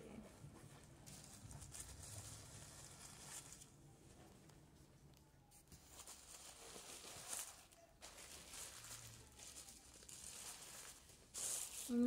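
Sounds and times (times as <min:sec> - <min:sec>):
plastic bag and denim rustling: 0:00.7 - 0:03.8, 0:05.7 - 0:12.0.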